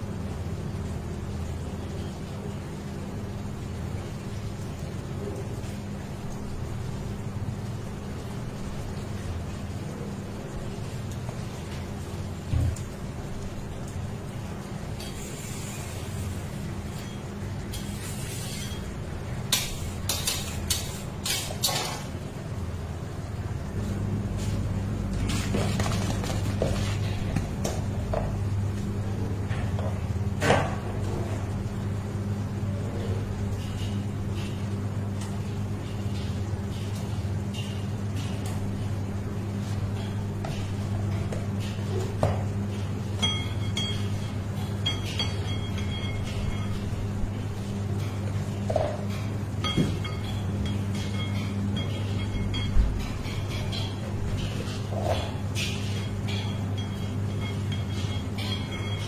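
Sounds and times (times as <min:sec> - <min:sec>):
steady low hum: 0:00.0 - 0:59.0
metal spatula scraping: 0:17.8 - 0:18.8
metal utensils clinking: 0:49.1 - 0:59.0.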